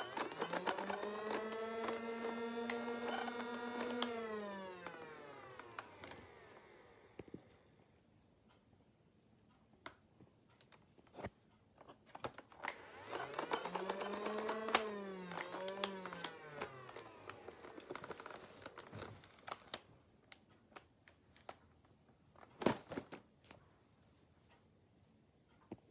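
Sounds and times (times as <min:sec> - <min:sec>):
handling clicks: 0:00.0 - 0:06.4, 0:12.1 - 0:19.7
flywheel motors whining: 0:00.0 - 0:07.7, 0:12.6 - 0:19.5.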